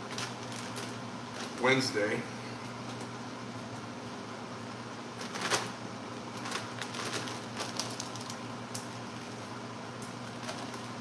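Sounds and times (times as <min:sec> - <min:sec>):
plastic bag rustling: 0:00.0 - 0:01.9, 0:05.2 - 0:08.5, 0:10.2 - 0:11.0
steady low hum: 0:00.0 - 0:11.0.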